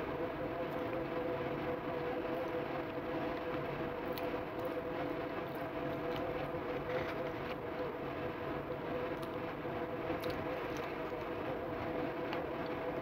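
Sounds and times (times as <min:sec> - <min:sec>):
machine hum: 0:00.0 - 0:13.0
person chewing fries: 0:10.1 - 0:11.3.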